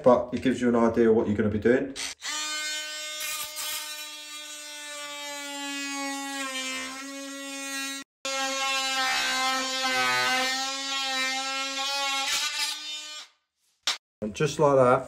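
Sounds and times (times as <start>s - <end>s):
oscillating multi-tool cutting wood: 2.0s - 13.3s.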